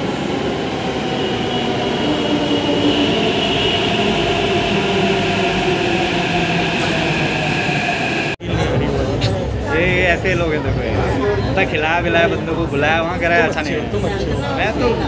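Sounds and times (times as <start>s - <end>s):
electric train rumbling: 0.0s - 9.1s.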